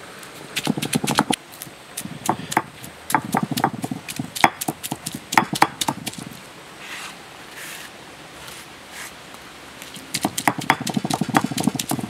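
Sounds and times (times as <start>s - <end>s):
stone roller knocking on stone: 0.6s - 1.4s, 2.3s - 6.2s, 10.2s - 12.0s.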